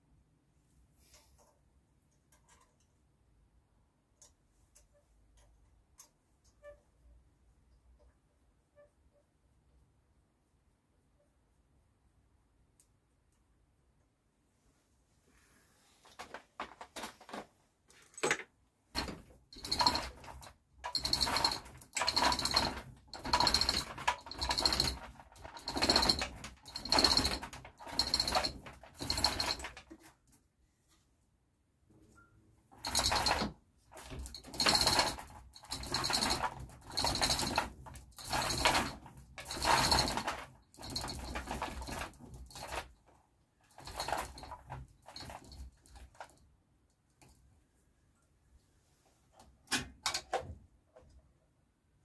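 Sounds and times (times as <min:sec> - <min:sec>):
hoist chain rattling: 0:19.0 - 0:29.9, 0:32.8 - 0:42.9, 0:43.7 - 0:46.3.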